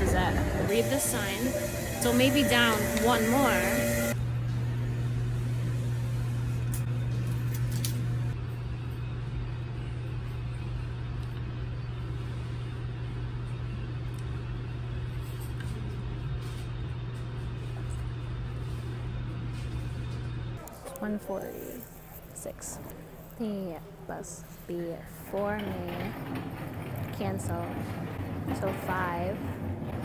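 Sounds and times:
low engine-like drone: 0:00.0 - 0:08.5.

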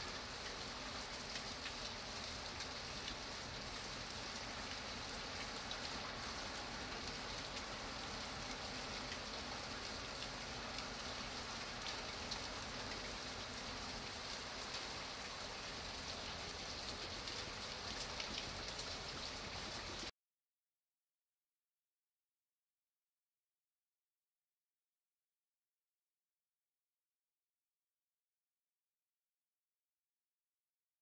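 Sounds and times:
faint raindrop ticks: 0:00.0 - 0:20.1
steady rain hiss: 0:00.0 - 0:20.1.

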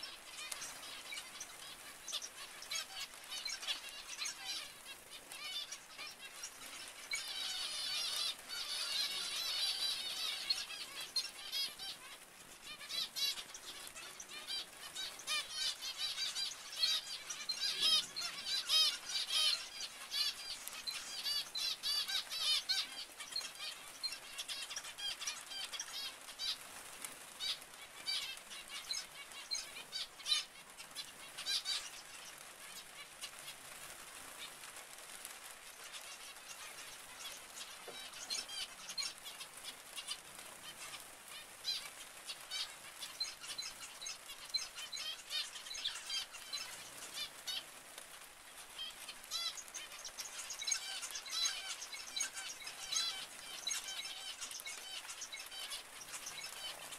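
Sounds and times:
zebra finches calling: 0:00.0 - 0:56.9.

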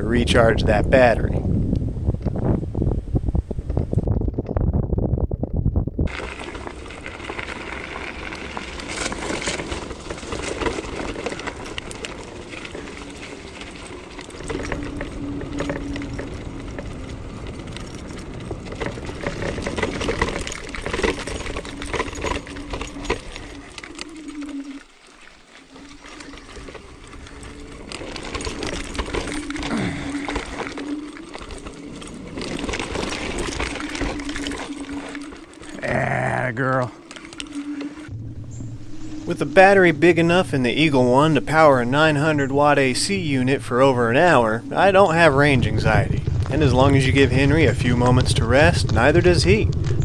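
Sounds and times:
wind buffeting microphone: 0:00.0 - 0:24.8, 0:25.7 - 0:50.0
scooter rattling over grass: 0:05.5 - 0:50.0
electric motor whine: 0:06.1 - 0:36.0, 0:36.6 - 0:41.6.

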